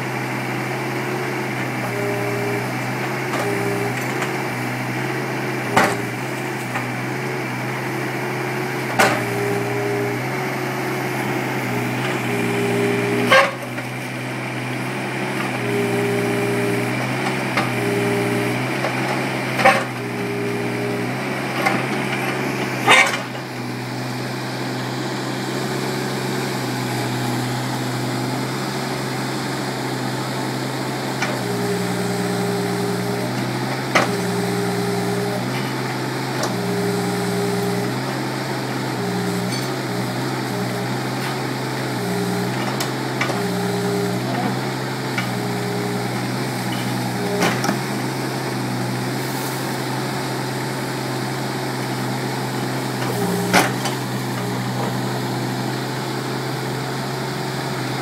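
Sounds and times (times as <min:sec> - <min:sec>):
excavator engine running: 0:00.0 - 0:58.0.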